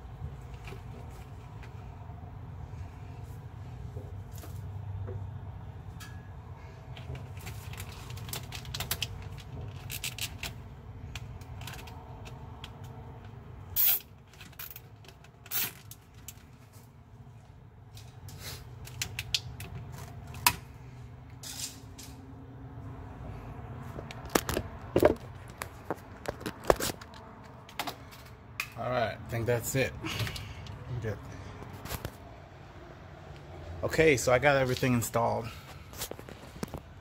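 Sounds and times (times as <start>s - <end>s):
clicks and rustles of cables: 0.4s - 1.8s, 6.9s - 20.7s, 23.8s - 28.8s, 31.6s - 32.2s, 35.6s - 37.0s.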